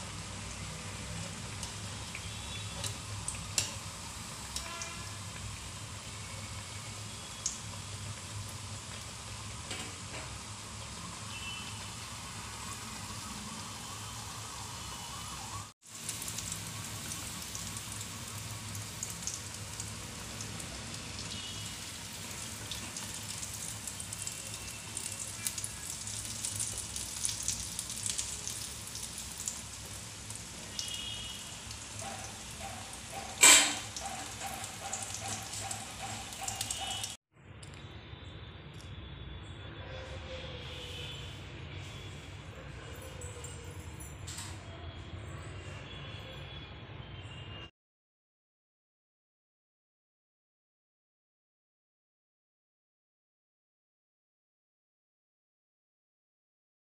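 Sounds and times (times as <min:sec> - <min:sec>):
hot oil sizzling and crackling: 0:00.0 - 0:37.2
wire skimmer clanking on steel plate: 0:33.3 - 0:33.9.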